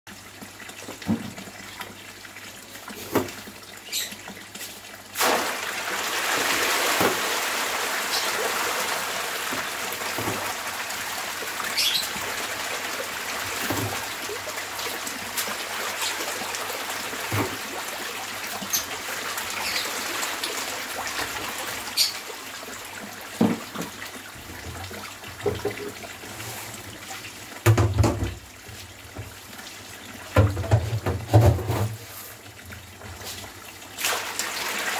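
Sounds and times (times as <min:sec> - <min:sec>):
water pouring from a pipe: 0:00.1 - 0:34.9
fish splashing at the surface: 0:05.2 - 0:18.1, 0:34.0 - 0:34.9.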